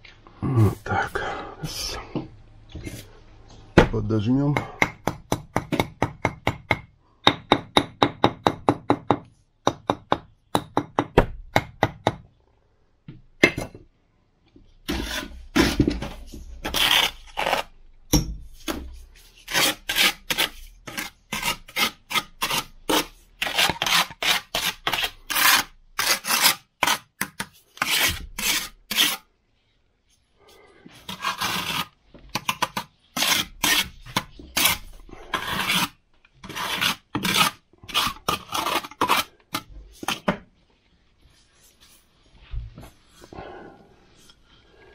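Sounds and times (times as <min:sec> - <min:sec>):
trowel scraping mortar: 0:14.8 - 0:17.8, 0:18.5 - 0:29.3, 0:30.9 - 0:40.3.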